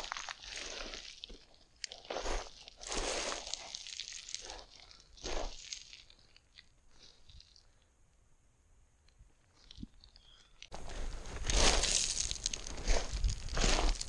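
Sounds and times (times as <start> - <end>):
footsteps crunching on scree: 0.0 - 6.7, 9.6 - 14.0.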